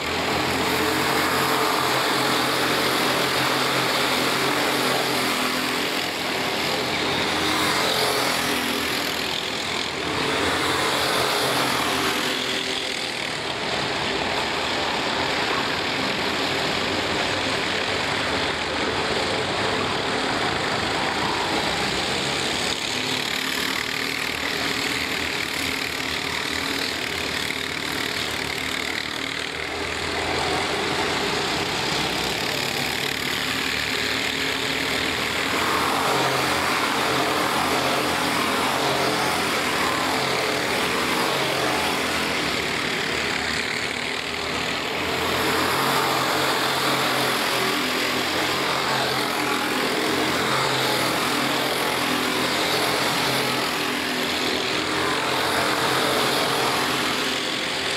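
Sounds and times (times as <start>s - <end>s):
racing kart engines droning: 0.0s - 57.9s.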